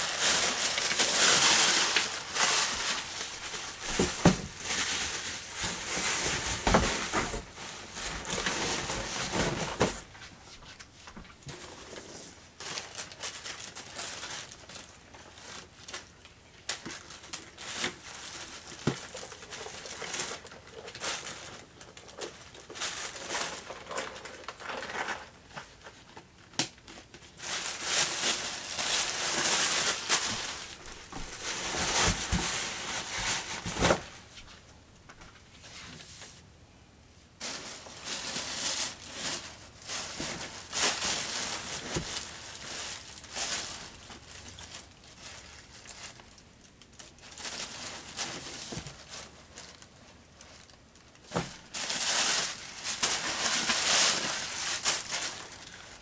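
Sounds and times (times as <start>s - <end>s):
plastic wrapping crinkling: 0.0s - 36.4s, 37.4s - 56.0s.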